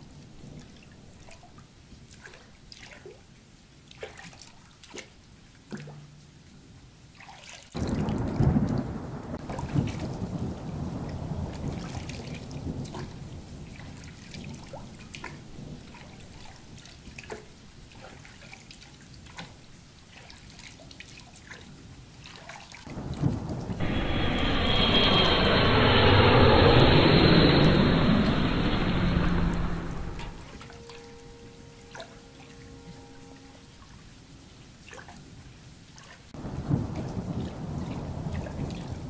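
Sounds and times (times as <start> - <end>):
low thunder rumble: 7.8 - 14.0, 22.9 - 33.6, 36.4 - 39.0.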